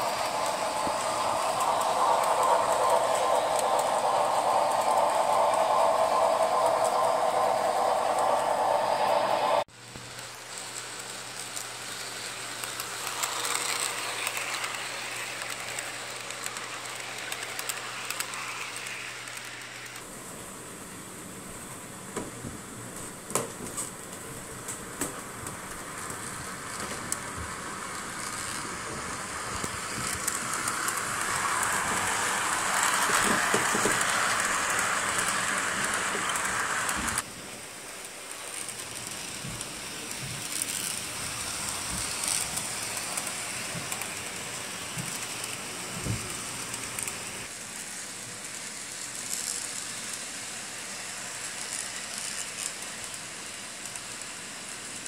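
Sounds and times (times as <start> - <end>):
track clicks: 0.0 - 9.6
model train running on track: 0.0 - 22.1, 22.7 - 55.0.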